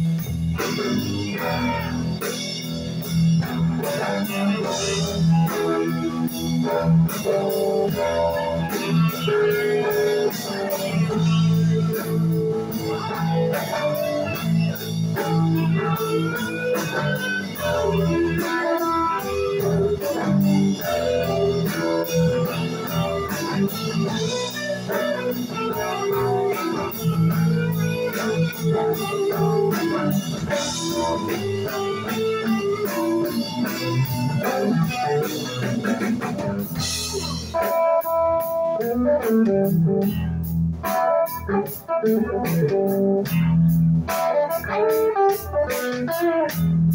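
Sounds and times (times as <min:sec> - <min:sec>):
bass guitar: 0:00.0 - 0:46.9
drums with cymbals: 0:00.0 - 0:46.9
electric guitar lead: 0:00.0 - 0:46.9.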